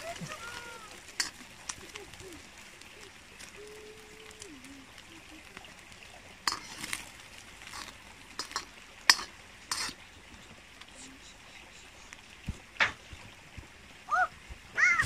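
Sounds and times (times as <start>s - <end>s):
utensils clinking against pots: 1.1s - 1.5s, 6.5s - 7.0s, 7.6s - 10.0s.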